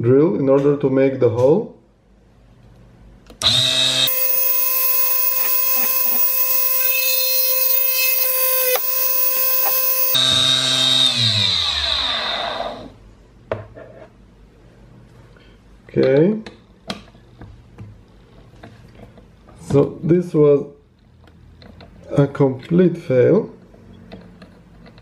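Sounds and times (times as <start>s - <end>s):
lathe motor whining: 3.4s - 10.3s
drill bit grinding metal: 3.4s - 11.7s
click: 4.1s - 10.2s.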